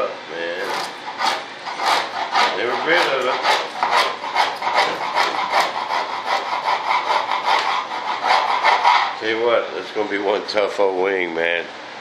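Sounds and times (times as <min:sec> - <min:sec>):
hand tool rasping foam: 0:00.6 - 0:09.2.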